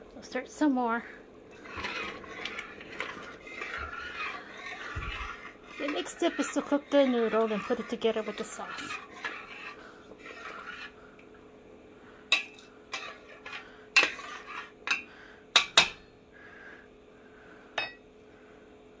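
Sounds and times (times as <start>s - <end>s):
faint steady hum: 0.0s - 19.0s
metal scraping: 1.5s - 11.0s.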